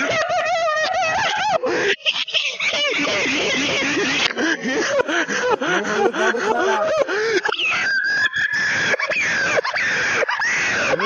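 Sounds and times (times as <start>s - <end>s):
person making high cries: 6.3s - 11.0s.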